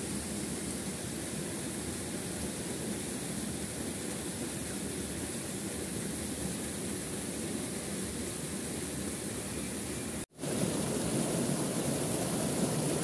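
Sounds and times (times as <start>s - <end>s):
waterfall rushing: 10.4s - 13.0s.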